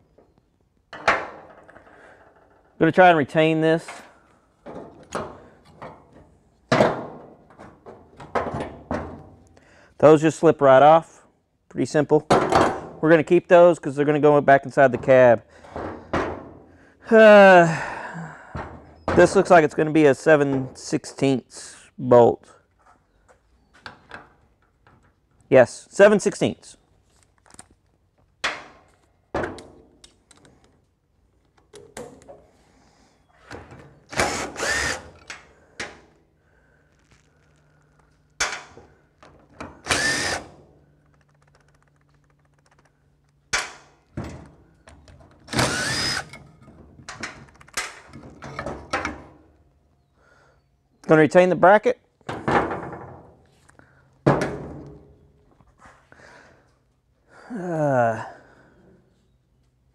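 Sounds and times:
cordless drill running in bursts: 34.2s - 35.2s, 39.8s - 40.5s, 45.5s - 46.4s.

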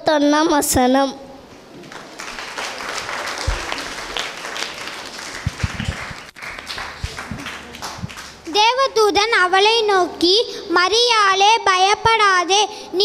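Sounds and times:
audience clapping: 1.8s - 8.7s.

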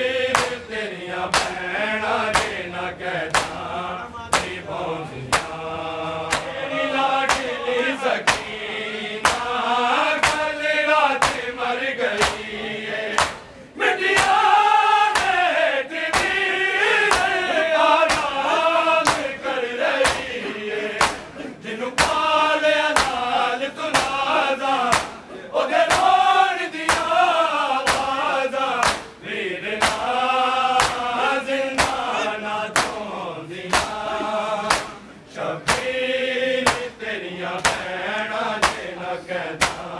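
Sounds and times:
crowd of men chanting: 0.0s - 39.9s
man reciting: 0.0s - 39.9s
chest-beating slaps: 0.3s - 0.7s, 1.3s - 3.6s, 4.3s - 4.6s, 5.3s - 6.6s, 7.2s - 7.6s, 8.2s - 8.6s, 9.2s - 10.6s, 11.2s - 12.5s, 13.1s - 14.5s, 15.1s - 15.4s, 16.1s - 16.4s, 17.0s - 22.3s, 22.9s - 23.3s, 23.9s - 25.3s, 25.9s - 26.1s, 26.9s - 27.2s, 27.8s - 28.2s, 28.8s - 29.2s, 29.8s - 30.1s, 30.7s - 36.0s, 36.6s - 37.0s, 37.6s - 39.0s, 39.6s - 39.9s.

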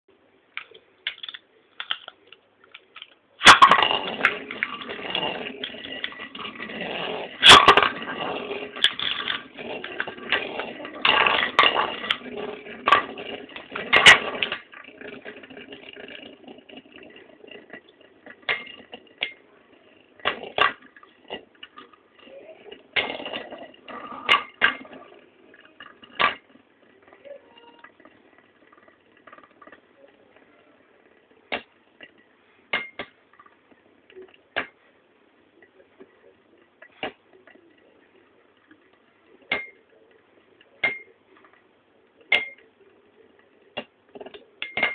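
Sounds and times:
spinning tops whirring and scraping: 3.0s - 30.4s.

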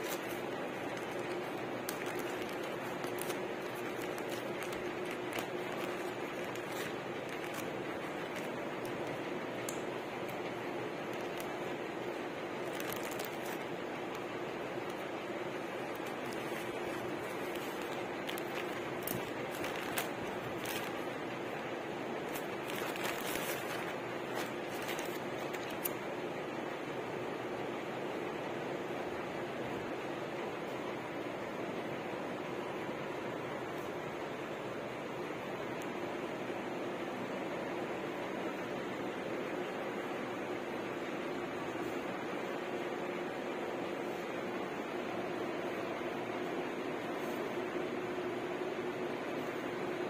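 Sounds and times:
plastic mailer crinkling: 0.0s - 26.0s
steady background hiss: 0.0s - 50.0s.

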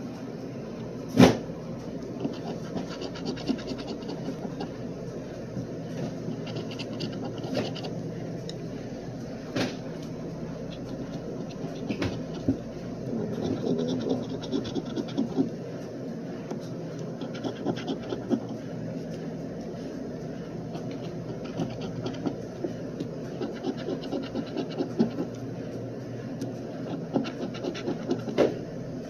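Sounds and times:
steady background hum: 0.0s - 29.0s
lottery ticket being scratched: 2.2s - 4.8s, 6.2s - 8.0s, 13.2s - 15.5s, 17.2s - 18.6s, 20.8s - 22.5s, 23.3s - 25.3s, 26.8s - 28.4s.

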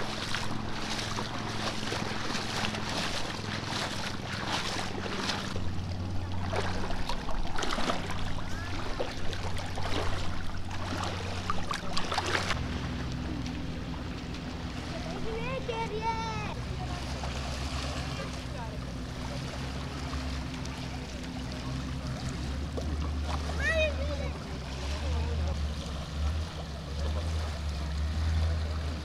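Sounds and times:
low engine hum: 0.0s - 29.0s
surf washing in: 0.0s - 29.0s.

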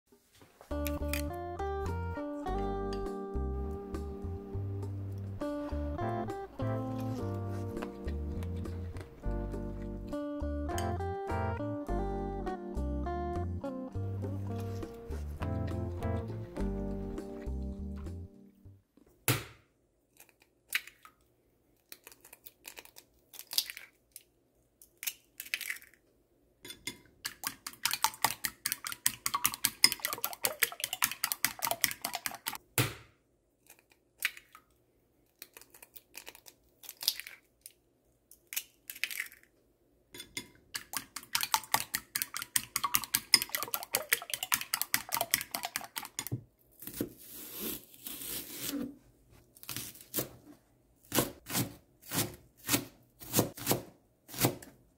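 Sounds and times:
eggs cracking: 21.8s - 26.0s, 26.7s - 32.6s, 33.6s - 39.6s, 40.2s - 46.4s
whisk clicking against bowl: 27.3s - 32.6s, 40.8s - 46.3s.

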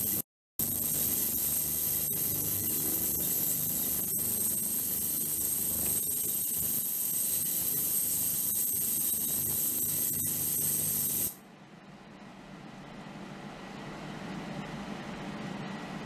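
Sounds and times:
ultrasonic cleaner hiss and whine: 0.0s - 11.4s.

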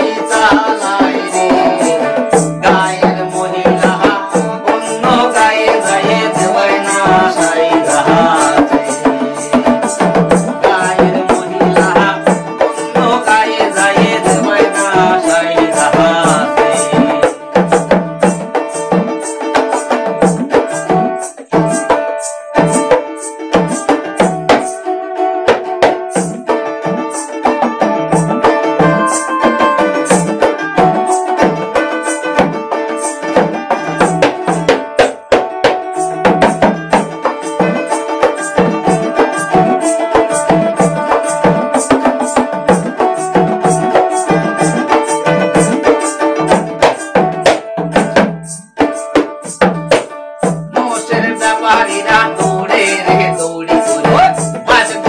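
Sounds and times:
person singing: 0.0s - 17.8s, 26.1s - 47.4s, 50.7s - 55.0s
hand drum beat: 0.0s - 55.0s
plucked lute strings: 0.0s - 55.0s.

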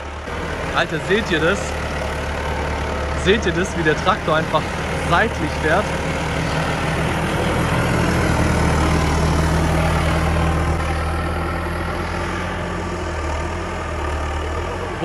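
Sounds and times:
tractor diesel engine humming: 0.0s - 15.0s.

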